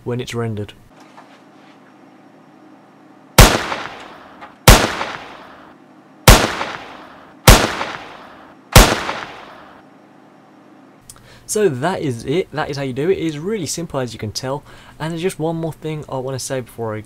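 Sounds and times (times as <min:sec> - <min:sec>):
pistol gunshots: 0:03.4 - 0:05.6, 0:06.2 - 0:09.8.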